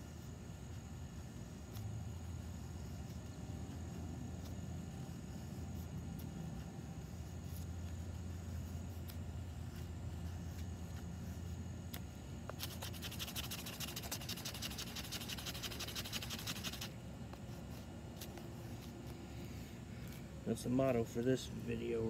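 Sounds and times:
knife scraping wooden stick: 5.2s - 19.2s.

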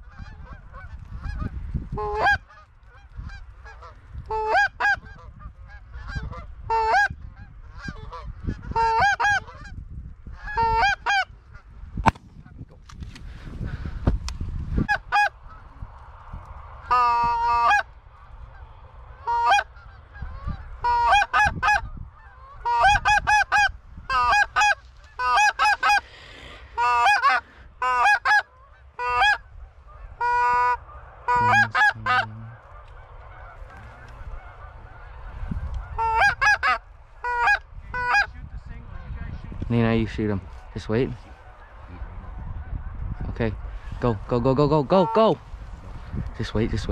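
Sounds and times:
goose calls honking: 0.1s - 9.7s, 19.2s - 21.8s, 22.4s - 26.0s, 26.8s - 35.2s, 35.8s - 38.3s, 44.9s - 45.4s.

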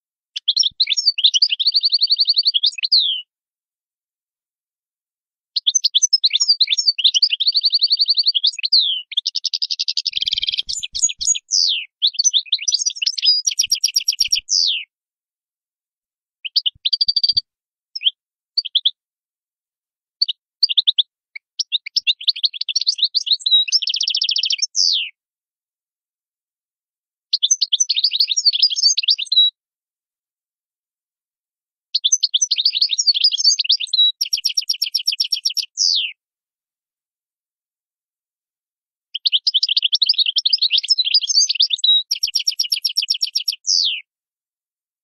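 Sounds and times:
goldfinch singing: 0.4s - 3.3s, 5.6s - 14.9s, 16.4s - 17.4s, 18.0s - 19.0s, 20.2s - 25.1s, 27.3s - 29.5s, 32.0s - 36.2s, 39.2s - 44.0s.

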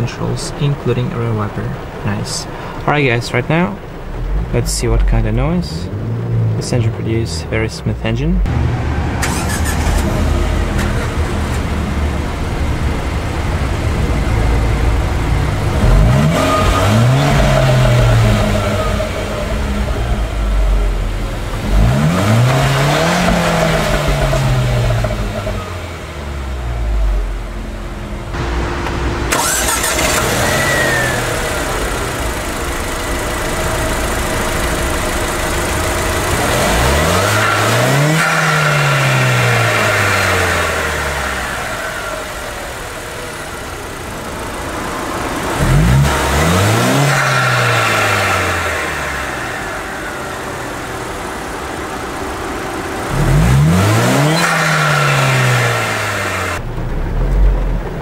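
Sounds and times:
car engine idling and revving: 0.0s - 58.0s.

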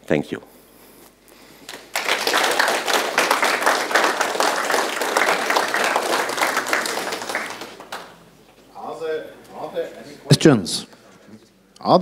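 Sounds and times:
audience applauding: 1.6s - 8.3s.

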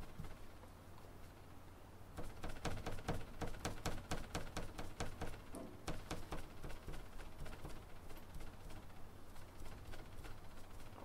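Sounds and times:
paint dauber tapping: 2.2s - 8.8s.

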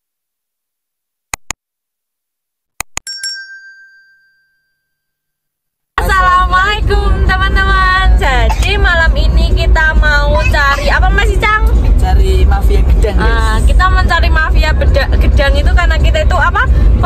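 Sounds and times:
double mouse click: 1.4s - 1.6s
notification bell ding: 3.0s - 5.0s.

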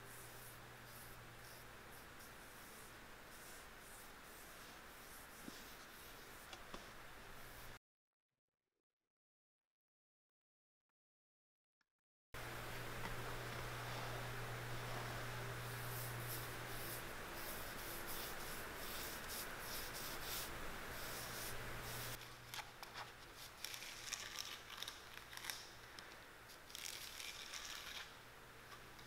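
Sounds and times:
steady low hum: 0.0s - 7.8s, 12.4s - 29.0s
dauber rubbing on leather: 14.8s - 22.2s.

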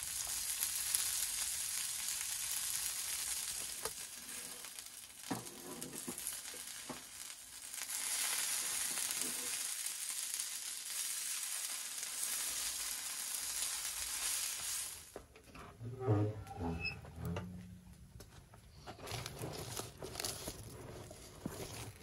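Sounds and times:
potatoes sizzling in skillet: 0.0s - 15.3s
metal spatula scraping: 4.2s - 6.2s, 15.6s - 17.8s.

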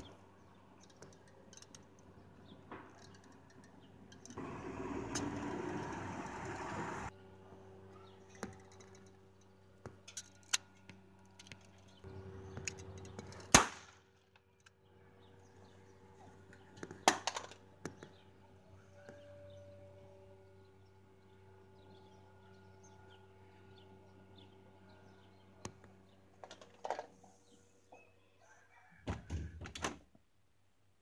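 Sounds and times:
toy revolver bangs: 13.5s - 14.0s.

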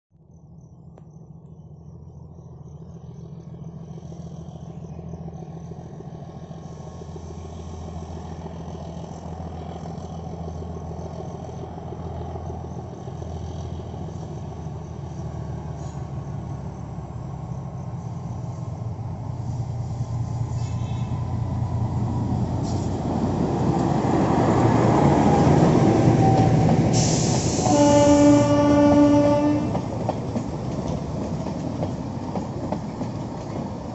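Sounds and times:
diesel locomotive engine drone: 0.2s - 33.9s
wheel-on-rail noise: 6.5s - 33.9s
train horn: 26.2s - 29.9s.

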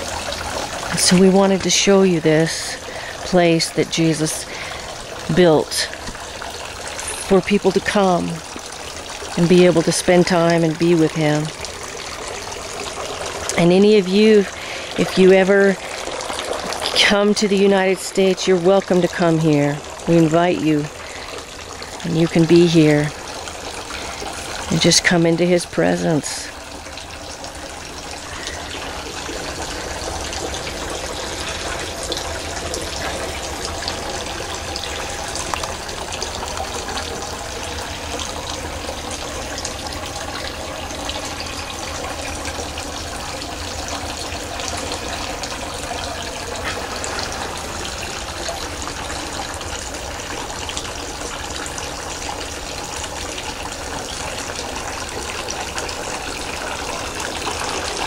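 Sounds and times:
fountain water splashing: 0.0s - 58.0s.

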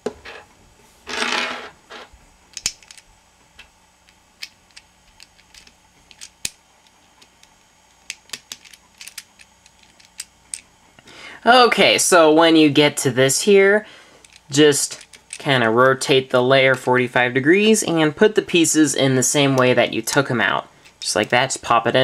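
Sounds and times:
plastic puzzle pieces clicking: 2.5s - 3.0s, 4.1s - 10.6s, 14.2s - 15.4s.

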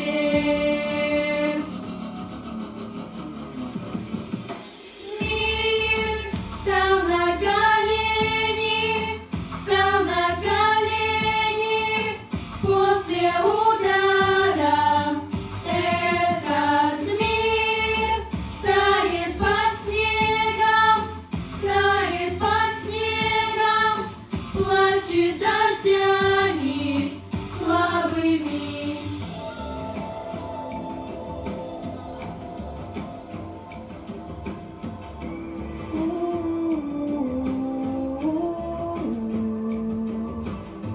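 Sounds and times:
girls singing together: 0.0s - 1.8s, 5.0s - 33.2s
backing track music: 0.0s - 40.9s.

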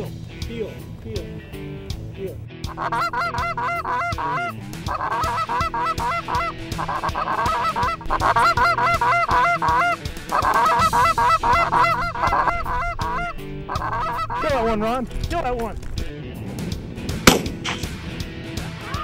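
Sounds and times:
low background music: 0.0s - 19.0s
goose honking: 2.7s - 15.1s.

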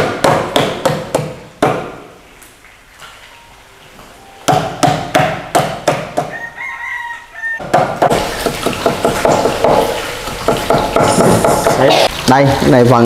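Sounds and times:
rooster crowing: 6.2s - 8.4s
knife chopping on board: 7.6s - 11.8s
food sizzling: 8.0s - 13.0s.

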